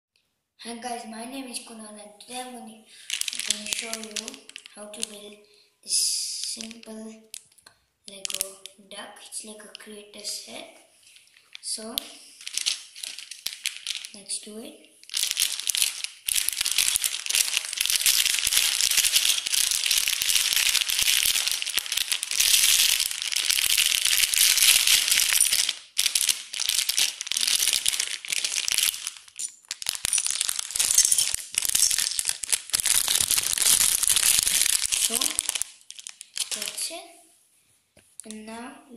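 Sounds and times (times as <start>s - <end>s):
plastic bag crinkling: 2.9s - 5.4s, 6.4s - 8.7s, 10.9s - 37.0s
plastic bricks rattling on tiles: 3.0s - 5.1s, 12.4s - 14.2s, 15.1s - 36.8s.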